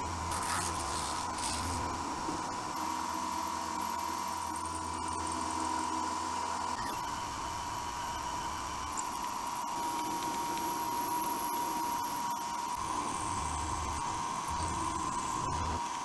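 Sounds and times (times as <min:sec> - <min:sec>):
milling machine whine: 0:00.0 - 0:16.0
high-pitched cutting hiss: 0:00.3 - 0:02.0.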